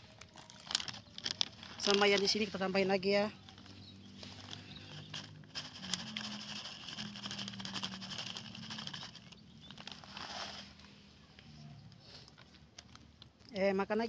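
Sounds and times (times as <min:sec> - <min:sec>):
plastic bag crinkling: 0:00.0 - 0:13.6
cat kibble pouring into plastic tray: 0:03.6 - 0:13.3.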